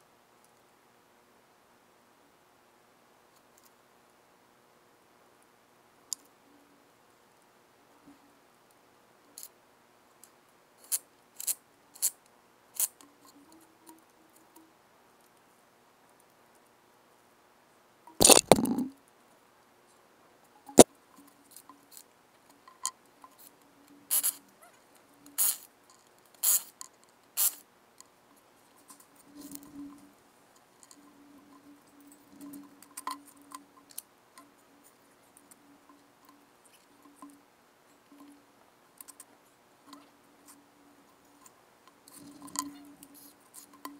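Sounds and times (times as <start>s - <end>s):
faint ticks: 6.1s - 6.6s, 10.2s - 16.8s, 18.1s - 43.9s.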